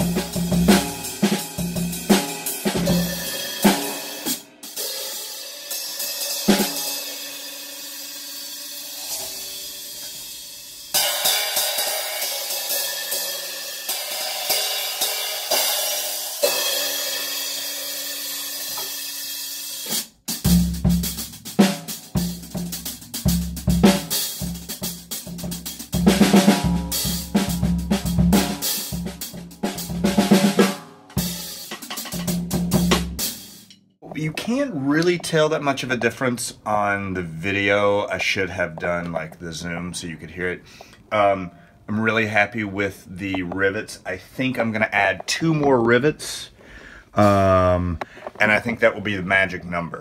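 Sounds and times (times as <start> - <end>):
bass drum snare and toms: 0.0 - 4.1, 20.3 - 33.5
cymbals ringing: 2.2 - 19.9.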